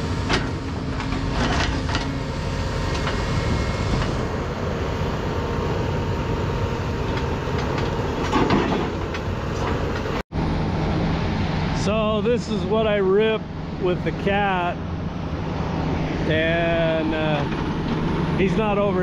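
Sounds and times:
excavator diesel engine running: 0.0s - 19.0s
rocks clanking on steel: 0.2s - 2.2s, 7.1s - 10.1s.

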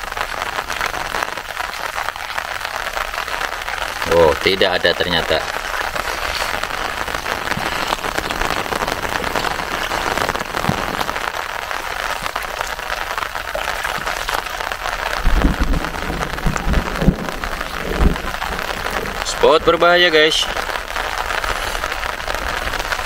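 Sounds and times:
rain falling on water: 0.0s - 23.0s
low thumps: 13.8s - 19.8s.

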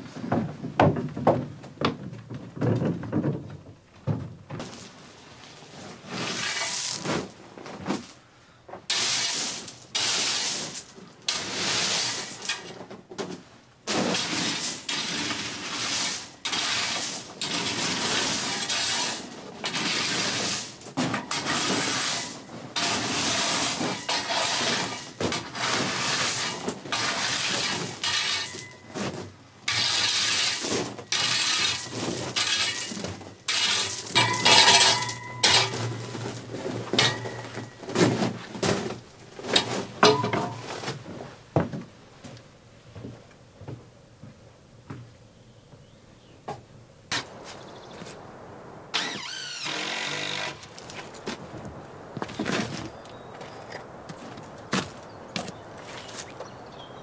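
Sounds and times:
rake scraping through gravel: 4.7s - 8.2s, 8.9s - 12.8s, 13.9s - 41.2s, 50.3s - 56.6s.

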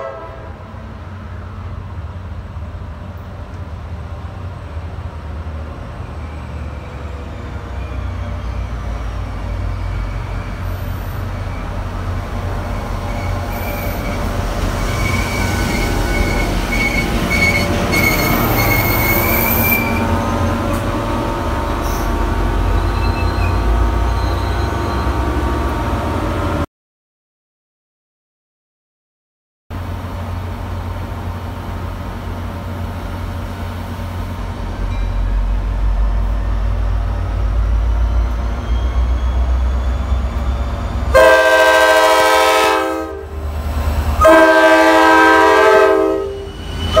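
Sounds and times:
passenger coaches rolling by: 0.0s - 26.6s, 29.8s - 47.0s
diesel locomotive rumbling: 0.0s - 26.7s, 29.7s - 47.0s
high thin squeal from wheels: 6.1s - 11.8s, 12.7s - 20.3s, 22.7s - 25.2s, 37.8s - 41.1s, 46.3s - 47.0s.

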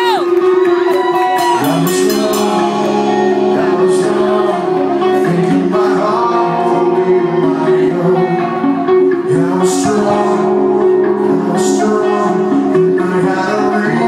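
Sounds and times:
bass and drums: 0.0s - 6.9s
electric guitar chords: 0.0s - 14.0s
man singing: 1.2s - 14.0s.

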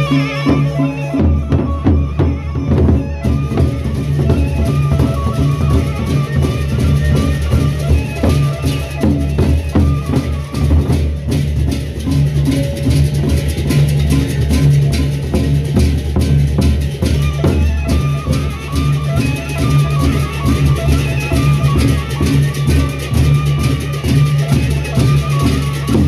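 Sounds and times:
barrel drums beaten by hand: 0.0s - 26.0s.

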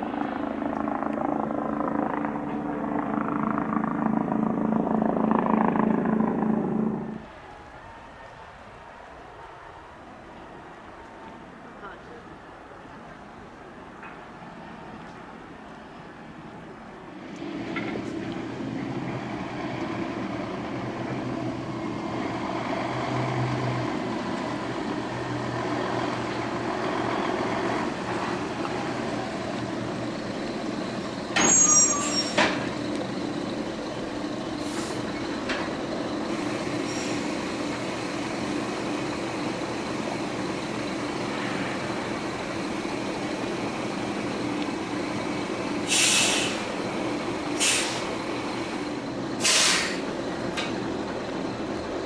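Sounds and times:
engine drone: 0.0s - 7.6s, 17.1s - 52.0s
high-pitched squeal: 28.9s - 35.4s.

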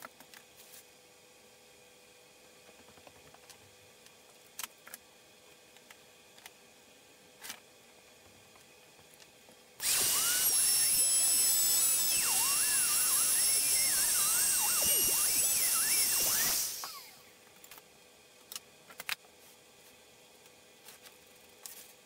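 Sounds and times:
router whining cutting wood: 9.8s - 17.4s.

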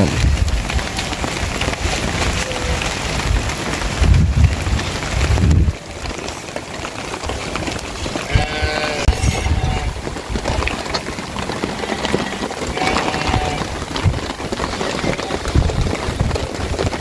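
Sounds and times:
steady rain: 0.0s - 17.0s
sheep bleating: 8.2s - 10.0s, 11.6s - 13.8s.

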